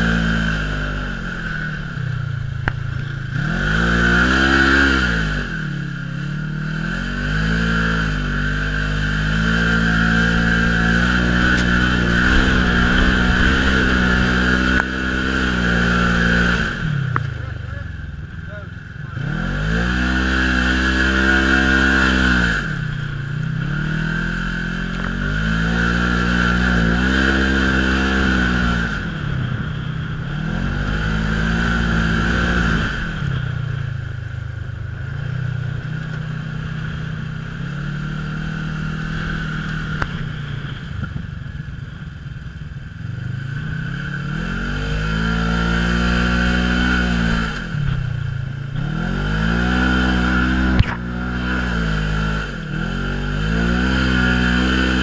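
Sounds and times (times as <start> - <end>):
engine revving under load: 0.0 - 41.3, 43.1 - 55.0.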